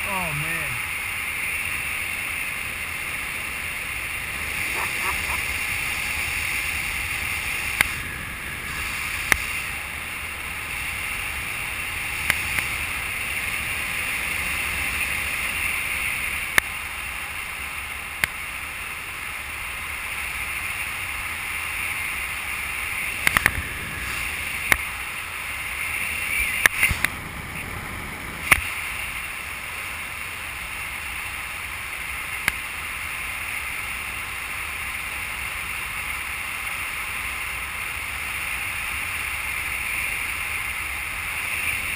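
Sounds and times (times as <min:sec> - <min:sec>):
wind rushing over camera: 0:00.6 - 0:18.4, 0:20.2 - 0:34.2.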